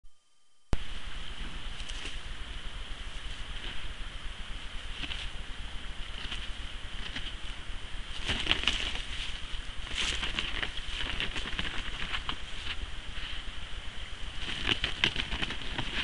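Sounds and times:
steady high hum: 0.0 - 16.0
claws scraping soil: 6.0 - 13.5.

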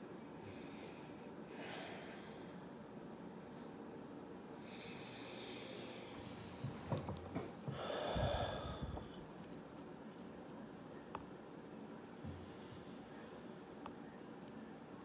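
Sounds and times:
man breathing through nose: 4.6 - 6.7, 7.7 - 9.3.

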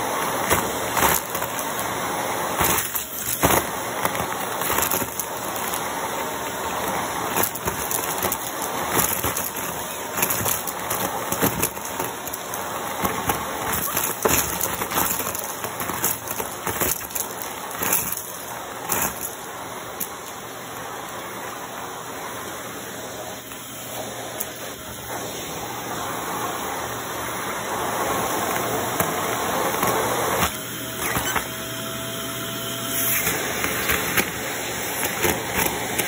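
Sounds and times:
debris rattling up hose: 0.0 - 31.5, 32.8 - 36.0
vacuum cleaner running: 0.0 - 36.0.

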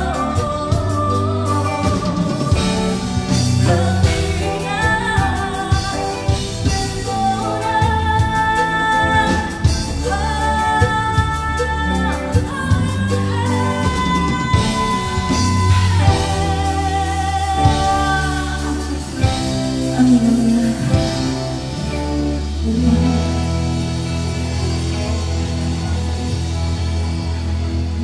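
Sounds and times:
woman singing: 0.0 - 25.4
cumbia band playing: 0.0 - 28.0.

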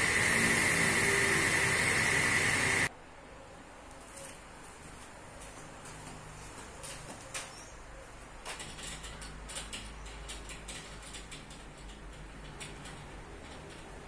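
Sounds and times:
wood and metal clicks and knocks: 8.4 - 14.0.

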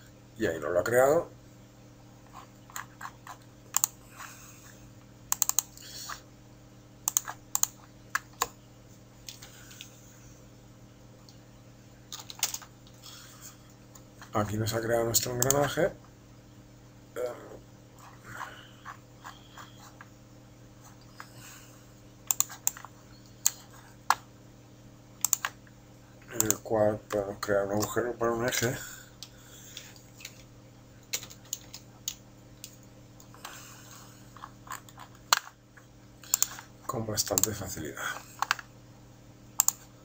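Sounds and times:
faint steady hum: 0.0 - 40.0
computer keyboard clicks: 2.7 - 4.0, 5.3 - 5.8, 7.1 - 8.6, 12.1 - 12.7, 15.4 - 15.7, 22.3 - 24.2, 25.2 - 25.6, 26.4 - 26.6, 31.1 - 32.8, 36.2 - 36.6, 37.3 - 37.6, 39.6 - 39.8.

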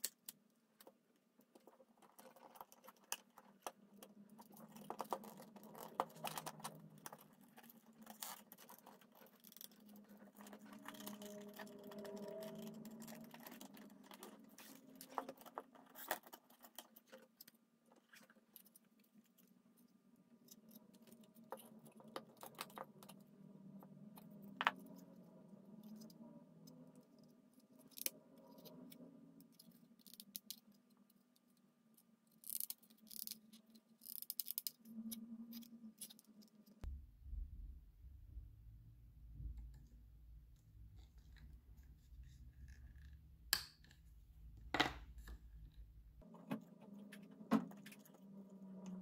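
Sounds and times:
plastic parts clicking and scraping: 0.0 - 23.3, 27.0 - 36.8
low steady hum: 34.7 - 49.0.

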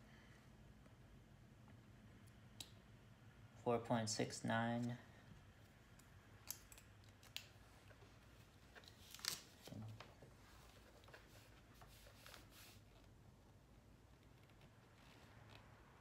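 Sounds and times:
paper rustle: 8.3 - 13.2.

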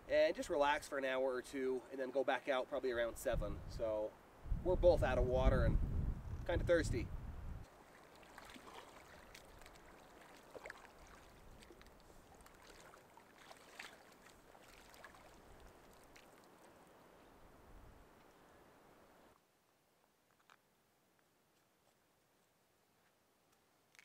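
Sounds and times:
small water splashes: 7.7 - 17.0
lake water sloshing and gurgling: 7.8 - 16.7.

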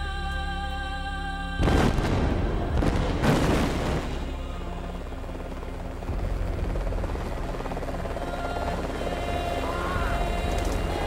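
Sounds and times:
loud burst: 1.6 - 4.4
low rumble with fast flutter: 1.6 - 11.0.

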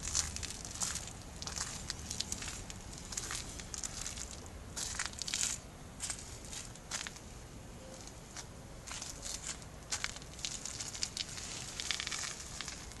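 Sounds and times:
footsteps on wet path: 0.0 - 7.2, 8.3 - 13.0
low steady rumble: 0.0 - 13.0
rain pattering on umbrella: 10.0 - 13.0.

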